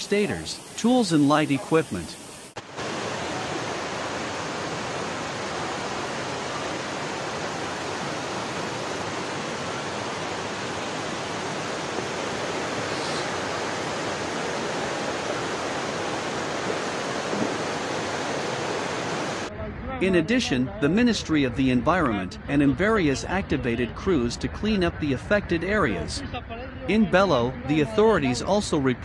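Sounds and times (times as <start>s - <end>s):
floodwater rushing: 0.0s - 19.5s.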